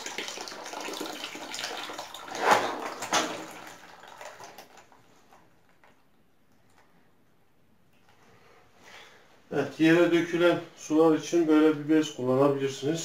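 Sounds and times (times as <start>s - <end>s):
water splashing into plastic basin: 0.0s - 6.1s
water dripping: 0.0s - 7.3s.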